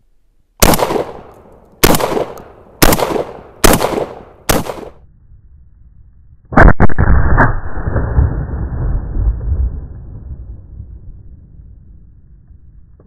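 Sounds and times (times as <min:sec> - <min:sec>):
shotgun blasts with echo: 0:00.6 - 0:05.0.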